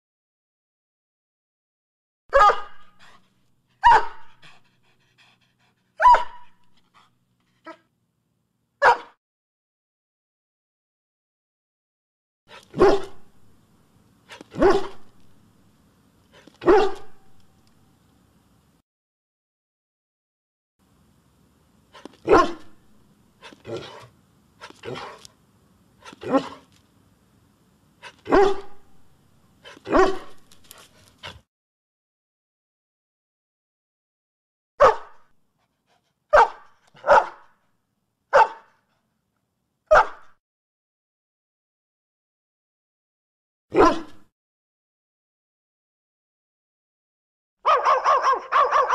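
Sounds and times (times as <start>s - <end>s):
dog barking: 2.3s - 3.2s, 3.8s - 4.6s, 6.0s - 6.6s, 8.8s - 9.2s, 12.7s - 13.3s, 14.3s - 15.1s, 16.6s - 17.2s, 22.2s - 22.8s, 26.0s - 26.7s, 28.0s - 28.9s, 29.6s - 30.4s, 34.8s - 35.3s, 36.3s - 37.6s, 38.3s - 38.8s, 39.9s - 40.4s, 43.7s - 44.2s, 47.6s - 48.9s.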